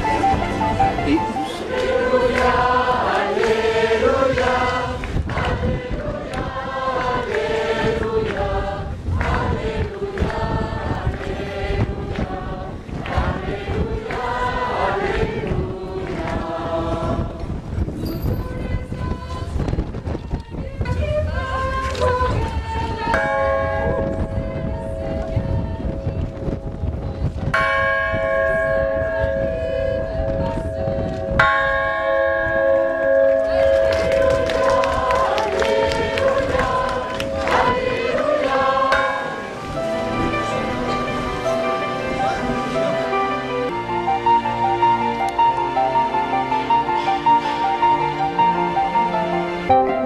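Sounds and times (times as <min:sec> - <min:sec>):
choir singing a chant: 0:01.1 - 0:17.7, 0:21.0 - 0:25.9, 0:33.4 - 0:43.8
church bell struck with mallet: 0:27.6 - 0:34.1, 0:38.9 - 0:39.5.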